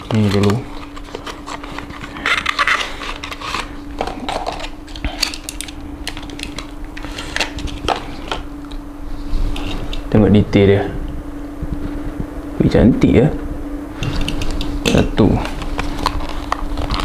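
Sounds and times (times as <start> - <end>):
plastic and card handling: 0.0 - 8.8, 14.3 - 17.0
steady low hum: 0.0 - 17.0.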